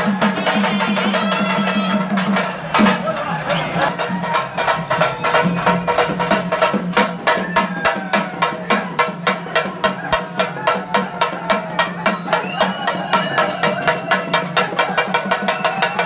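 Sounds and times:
drums beaten in fast rhythm: 0:00.0 - 0:16.0.

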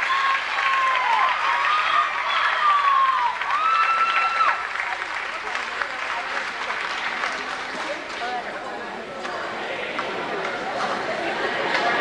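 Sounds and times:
crowd applauding: 0:00.0 - 0:08.4.

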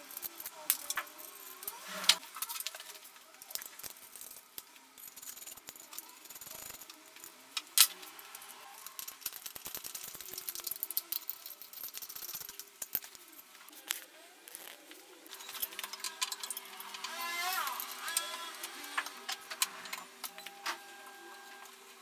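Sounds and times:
metal bolts and tool rattling: 0:00.0 - 0:02.9, 0:03.5 - 0:13.5, 0:15.3 - 0:17.1.

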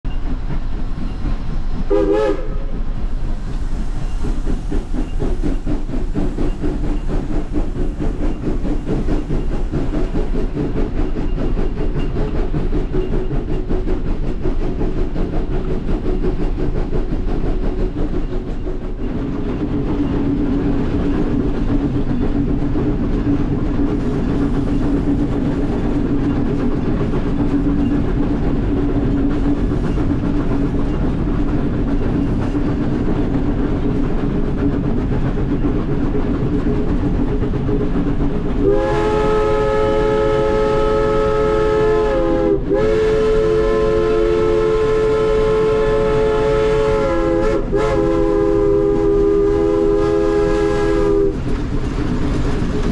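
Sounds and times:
steam locomotive cab noise: 0:00.0 - 0:52.9
steam whistle blasts: 0:01.9 - 0:02.8, 0:38.6 - 0:51.4.

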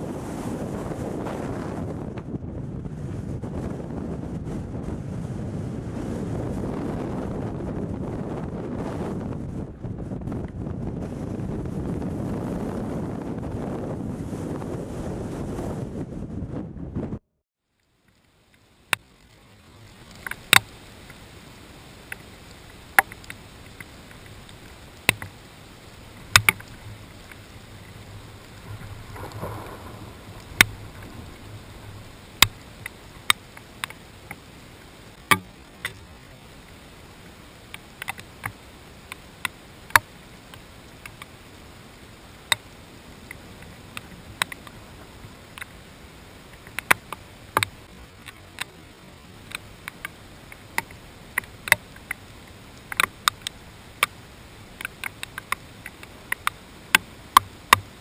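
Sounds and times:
rain and wind hiss: 0:00.0 - 0:15.2, 0:17.7 - 0:58.0
faint low rumble: 0:00.0 - 0:58.0
raindrops clicking on camera: 0:17.7 - 0:58.0.

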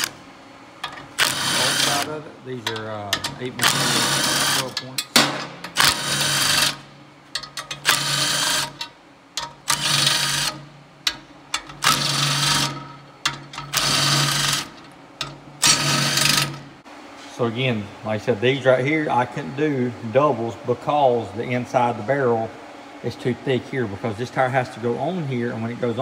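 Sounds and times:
impact tool bursts: 0:00.8 - 0:16.8.

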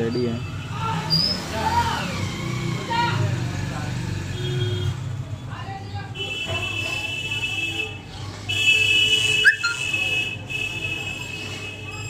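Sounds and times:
high whistle: 0:09.4 - 0:09.9.

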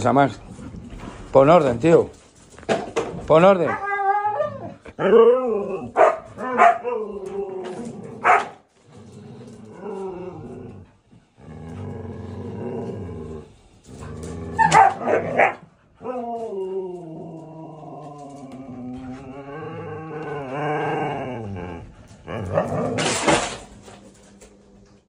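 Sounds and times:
dogs barking and yipping: 0:03.6 - 0:07.2, 0:08.2 - 0:08.6, 0:14.6 - 0:16.2
dog howling: 0:03.6 - 0:08.0, 0:14.5 - 0:21.9
dogs yowling: 0:03.6 - 0:08.5, 0:14.5 - 0:21.8
dogs growling: 0:03.6 - 0:25.0.

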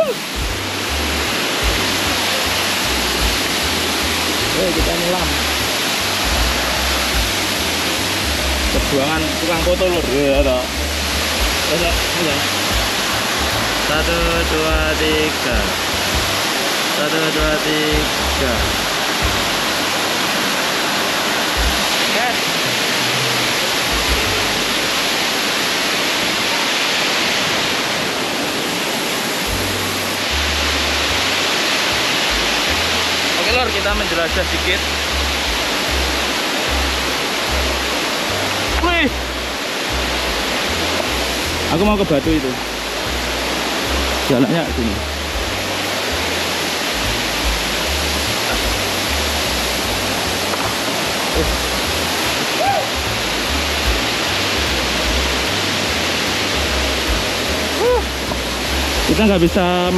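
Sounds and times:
waterfall rushing: 0:00.0 - 0:59.9
low deep notes: 0:00.2 - 0:16.8, 0:17.4 - 0:25.1, 0:29.4 - 0:59.9
low rumbles on microphone: 0:00.3 - 0:16.7, 0:21.3 - 0:22.0.

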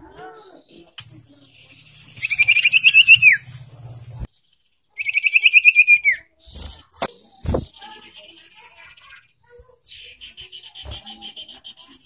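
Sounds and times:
bird trilling high chattering notes: 0:02.2 - 0:03.5, 0:05.0 - 0:06.2.

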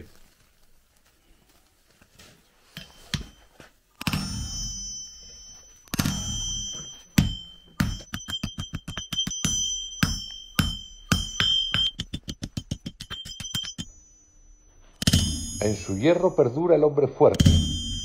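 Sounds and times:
hammer striking metal on anvil: 0:02.8 - 0:14.2, 0:14.8 - 0:16.6, 0:17.3 - 0:18.0.

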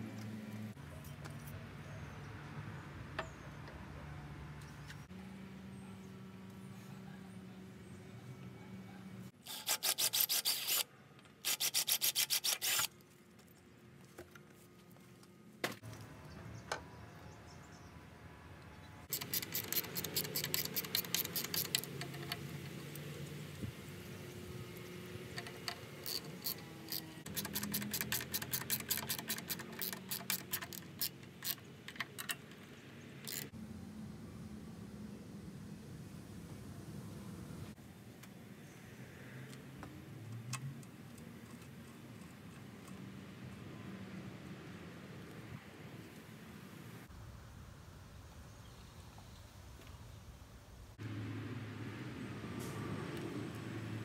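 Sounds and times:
wrench ratcheting clicks: 0:19.1 - 0:22.4, 0:25.4 - 0:32.4, 0:33.2 - 0:33.5.

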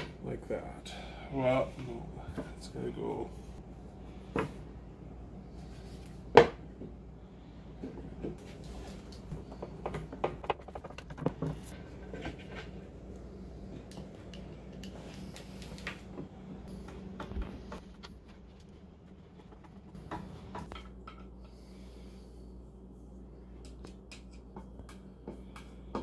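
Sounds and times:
clicks and taps of parts: 0:23.6 - 0:26.0.

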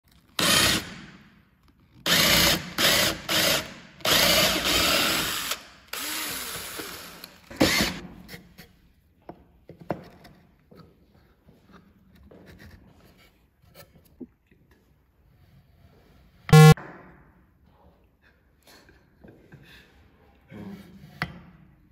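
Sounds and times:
power drill boring into wood: 0:00.4 - 0:01.0, 0:02.1 - 0:08.0.

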